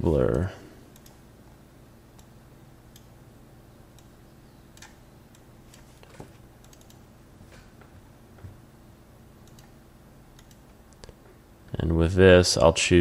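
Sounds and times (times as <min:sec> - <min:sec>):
low steady hum: 0:00.0 - 0:13.0
mouse and keyboard clicks: 0:10.4 - 0:11.1.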